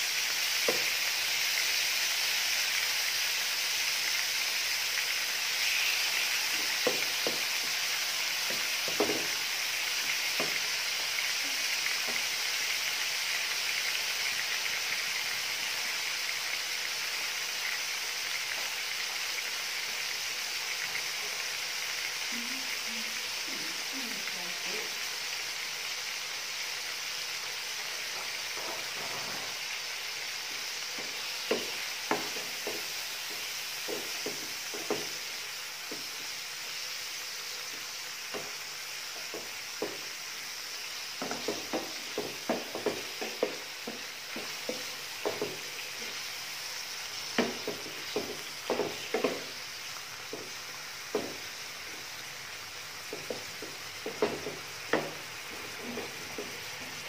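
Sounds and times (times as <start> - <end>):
meat sizzling in hot oil: 0.0 - 57.0
wooden spoon knocking on a pan: 0.6 - 0.9, 6.5 - 7.5, 8.4 - 9.4, 10.3 - 10.7, 12.0 - 12.2, 31.0 - 35.2, 35.9 - 36.1, 38.3 - 38.6, 39.2 - 40.1, 41.2 - 46.2, 47.3 - 49.6, 50.3 - 51.5, 53.1 - 57.0.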